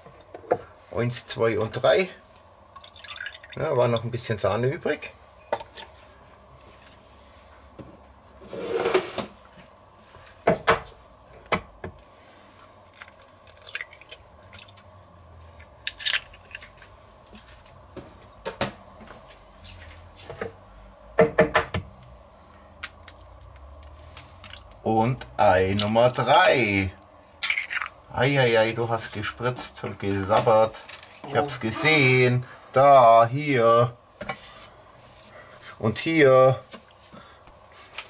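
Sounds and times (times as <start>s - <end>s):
eggshell handling: 12.8s - 14.9s, 15.6s - 16.9s, 22.9s - 24.8s, 27.4s - 28.0s
eggs cracked on metal bowl: 12.9s - 14.8s, 15.6s - 16.8s, 27.4s - 28.0s.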